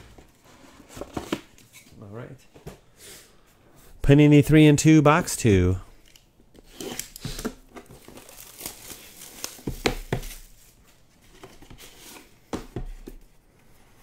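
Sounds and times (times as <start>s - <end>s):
plastic wrap crinkling: 6.7s - 10.8s
cardboard rustling: 6.7s - 14.0s.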